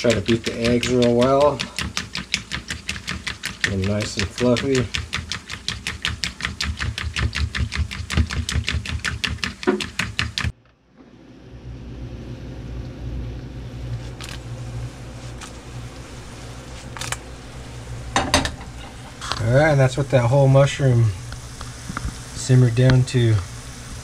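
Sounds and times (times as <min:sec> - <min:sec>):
fork beating eggs in a bowl: 0:00.0 - 0:10.5
low hum with faint hiss: 0:10.5 - 0:24.0.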